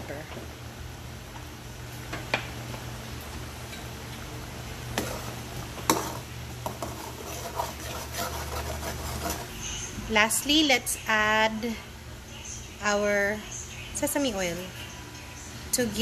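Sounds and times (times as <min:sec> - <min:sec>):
steady low hum: 0:00.0 - 0:16.0
ladle stirring boiling broth: 0:04.9 - 0:09.6.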